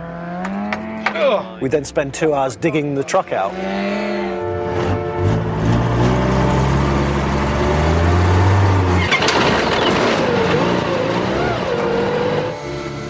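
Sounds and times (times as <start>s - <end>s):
truck engine running hard: 4.4s - 13.0s.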